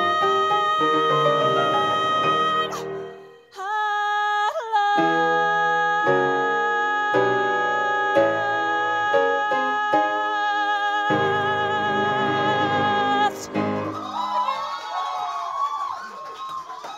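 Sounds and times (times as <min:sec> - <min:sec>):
woman singing with vibrato: 0:00.0 - 0:14.1
accompaniment chords: 0:11.1 - 0:14.2
audience cheering and whooping: 0:12.5 - 0:16.9.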